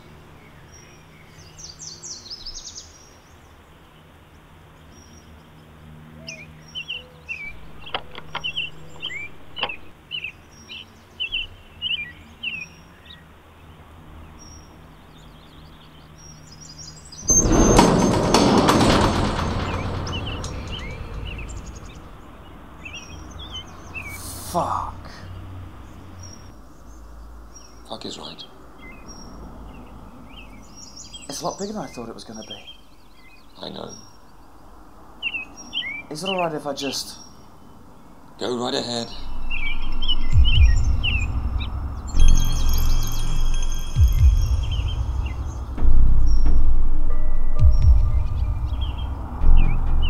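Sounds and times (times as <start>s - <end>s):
small birds chirping: 0.0s - 18.1s, 18.8s - 50.0s
sharp clicks: 7.8s - 9.9s.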